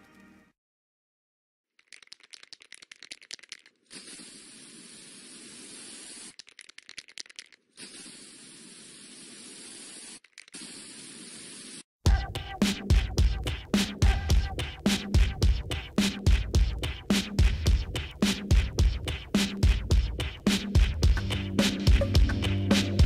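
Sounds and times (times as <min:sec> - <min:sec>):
music: 0:00.0 - 0:00.6, 0:12.1 - 0:23.0
spray can ball rattling: 0:01.8 - 0:11.8
spray paint hissing: 0:01.9 - 0:11.9.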